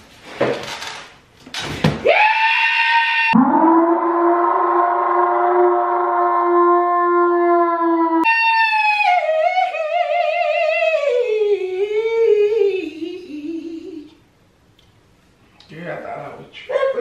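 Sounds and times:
man singing with vibrato: 0:08.7 - 0:14.2.

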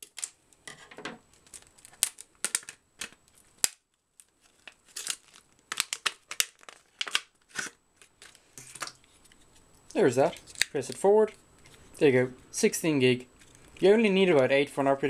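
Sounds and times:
plastic blister pack crackling: 0:01.2 - 0:12.0.

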